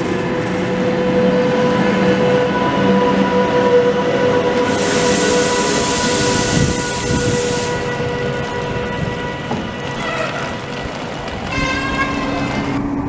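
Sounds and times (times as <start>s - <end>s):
electric locomotive whine and rumble: 0.0s - 13.0s
hiss: 4.6s - 7.8s.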